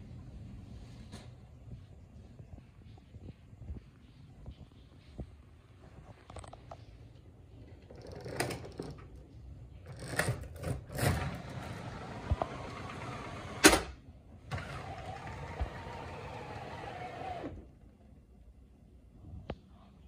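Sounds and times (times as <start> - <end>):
blind whirring rattle: 9.9 - 17.7
window blind rustling and scraping: 14.5 - 17.6.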